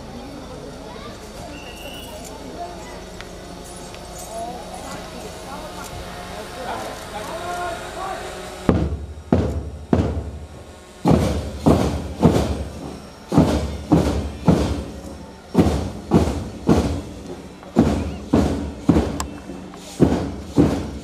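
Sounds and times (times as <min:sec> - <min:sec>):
drums beating slow march: 0:07.7 - 0:21.0.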